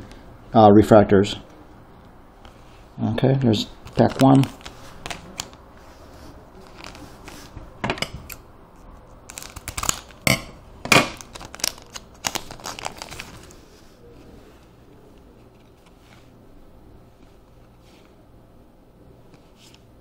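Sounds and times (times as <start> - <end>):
foil wrapper crinkling and tearing: 3.8 - 5.6, 6.6 - 7.5, 9.2 - 10.3, 10.9 - 13.6.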